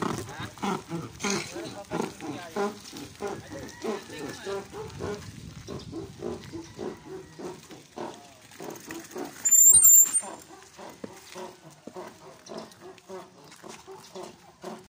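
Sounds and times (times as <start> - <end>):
bicycle brakes squealing: 9.4 - 10.4.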